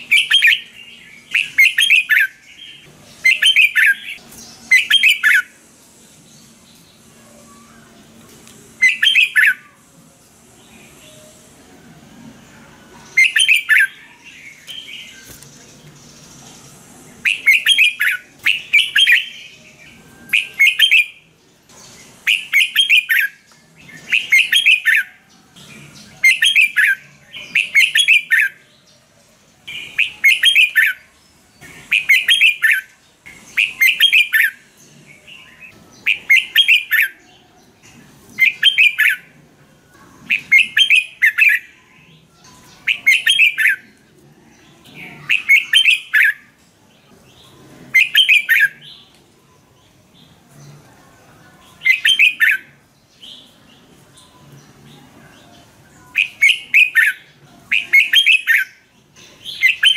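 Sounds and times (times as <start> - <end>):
bird singing whistled phrases: 0.0 - 5.5, 8.8 - 9.8, 13.1 - 15.3, 17.2 - 21.3, 22.2 - 25.2, 26.2 - 28.6, 29.7 - 31.1, 31.9 - 32.9, 33.5 - 34.6, 35.4 - 37.2, 38.4 - 39.3, 40.3 - 41.9, 42.6 - 43.9, 45.2 - 46.5, 48.0 - 49.0, 51.8 - 53.4, 56.0 - 58.8, 59.5 - 59.9.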